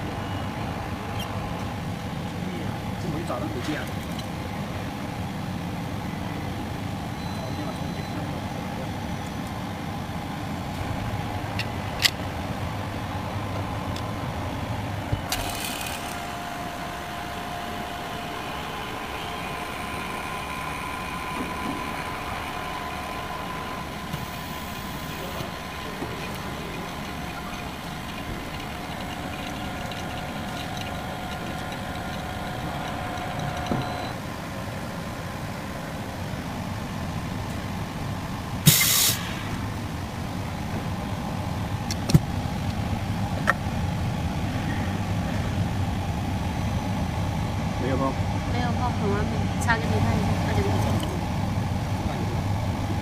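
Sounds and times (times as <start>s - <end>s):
vacuum laminator humming: 15.3s - 34.2s
short hiss of air: 38.6s - 39.7s.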